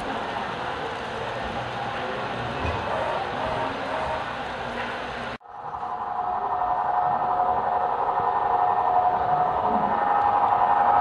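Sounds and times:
model train cars rolling: 0:00.0 - 0:06.0.

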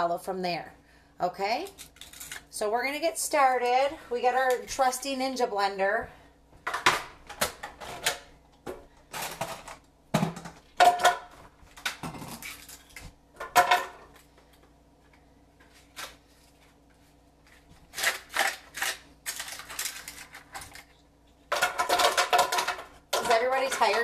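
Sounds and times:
kitchen items clattering on counter: 0:06.6 - 0:14.2, 0:19.3 - 0:24.0.

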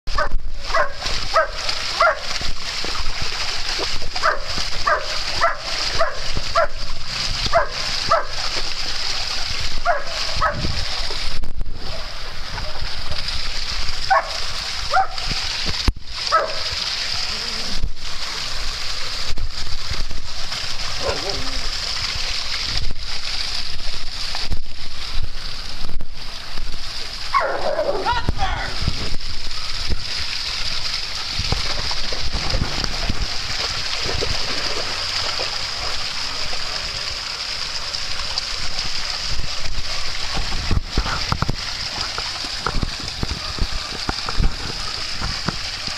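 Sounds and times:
waterfall rushing into pond: 0:00.1 - 0:45.9
dog barking: 0:00.2 - 0:02.2, 0:04.2 - 0:06.8, 0:07.5 - 0:08.3, 0:09.8 - 0:10.6, 0:14.1 - 0:15.2, 0:16.3 - 0:16.7, 0:27.3 - 0:28.1
wind rumble on microphone: 0:09.6 - 0:12.7, 0:28.2 - 0:30.1, 0:31.3 - 0:34.6.

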